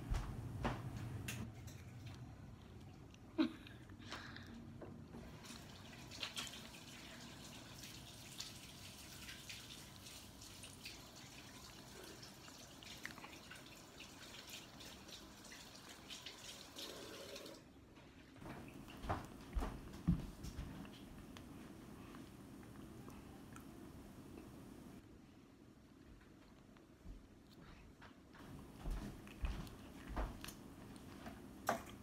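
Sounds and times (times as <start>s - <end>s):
running water hiss: 5.3s - 17.6s.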